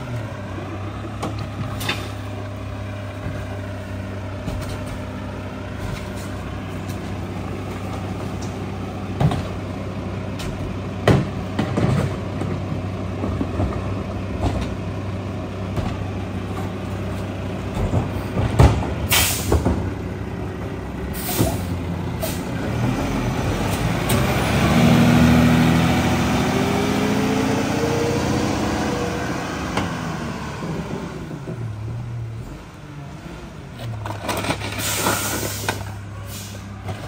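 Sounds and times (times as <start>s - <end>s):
garbage truck diesel engine: 0.0s - 37.0s
air brake hisses: 19.1s - 19.6s, 21.2s - 22.5s, 34.8s - 36.7s.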